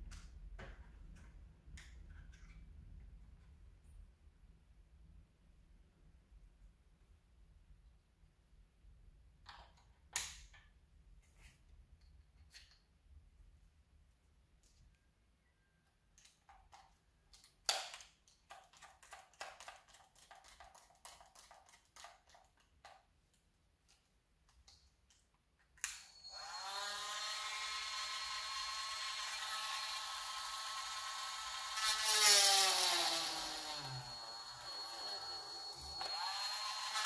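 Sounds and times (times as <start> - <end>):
rotary tool motor whine: 26.2 - 37.0.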